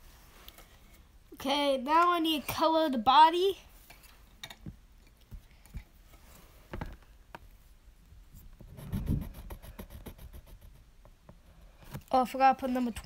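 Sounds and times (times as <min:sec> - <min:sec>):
pencil scratching on paper: 0:08.7 - 0:10.8
quick pencil scribbling: 0:08.7 - 0:10.8.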